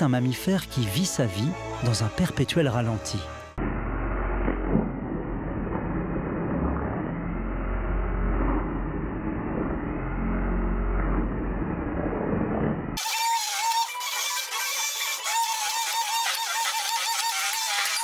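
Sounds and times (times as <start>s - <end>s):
immersion blender running: 13.0s - 18.0s.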